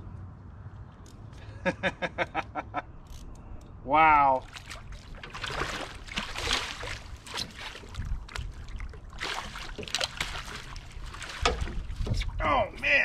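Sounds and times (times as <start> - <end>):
fish thrashing and splashing: 4.4 - 12.4.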